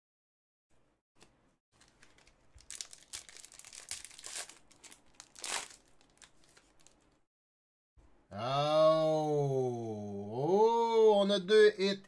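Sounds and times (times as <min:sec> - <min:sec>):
card pack wrapper crinkling and tearing: 0:01.8 - 0:07.2.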